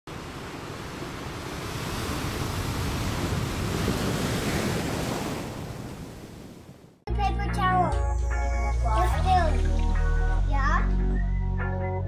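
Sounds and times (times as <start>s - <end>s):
ocean waves breaking: 0.1s - 7.0s.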